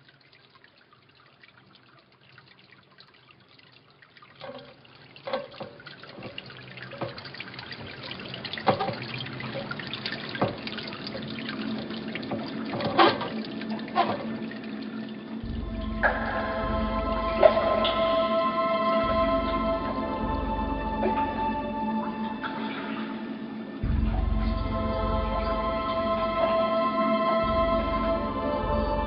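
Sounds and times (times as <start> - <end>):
water drops splashing: 0.0 - 18.4
water trickling and dripping: 0.0 - 29.0.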